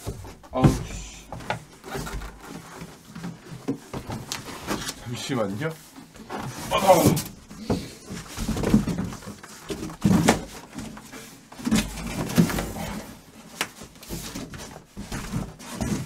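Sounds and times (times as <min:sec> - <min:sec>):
box handled and unpacked: 0:00.0 - 0:16.0.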